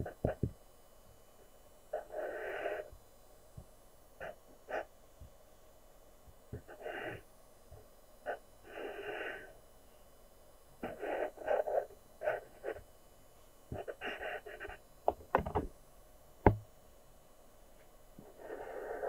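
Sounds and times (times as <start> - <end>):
pencil scratching on paper: 10.8 - 12.8, 13.7 - 14.8.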